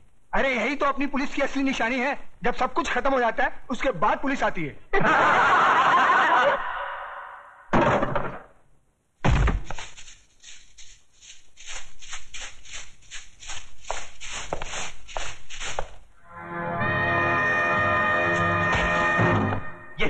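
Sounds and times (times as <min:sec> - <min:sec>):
audience laughing and clapping: 0:05.0 - 0:07.2
heavy thud: 0:09.2 - 0:09.8.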